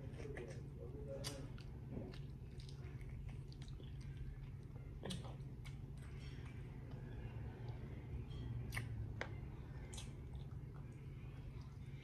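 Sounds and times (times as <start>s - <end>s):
person chewing food: 0.1s - 12.0s.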